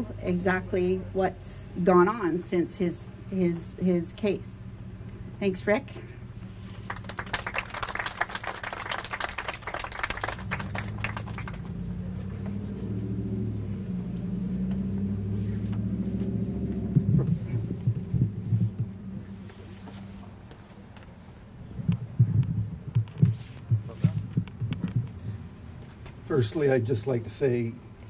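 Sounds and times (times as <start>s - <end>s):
low wavering rumble and hum: 0.0s - 25.8s
audience applause: 6.7s - 11.9s.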